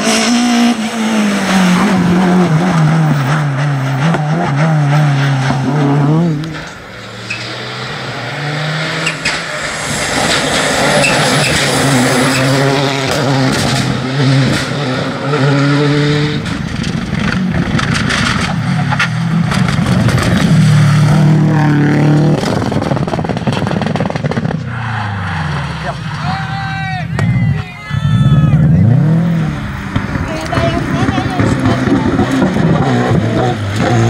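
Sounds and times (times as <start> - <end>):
rally car engines revving hard: 0.0 - 26.5, 27.2 - 34.0.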